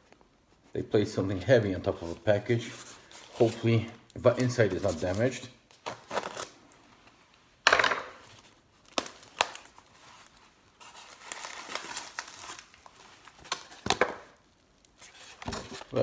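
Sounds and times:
plastic packaging crinkling: 2.0s - 6.8s, 8.2s - 16.0s
plastic packaging ripping: 3.4s - 6.8s, 8.4s - 16.0s.

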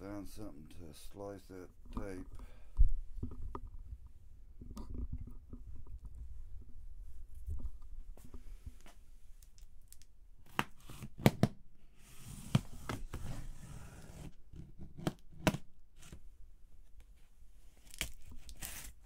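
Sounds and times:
tape tearing: 17.8s - 19.0s
knife slicing packing tape: 17.9s - 19.0s.

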